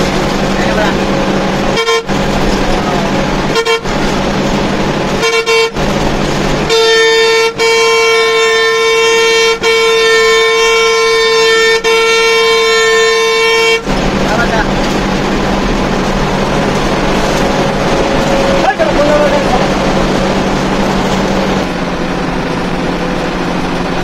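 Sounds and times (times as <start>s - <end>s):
bus engine: 0.0s - 24.0s
road noise: 0.0s - 24.0s
bus horn honking: 0.7s - 15.0s.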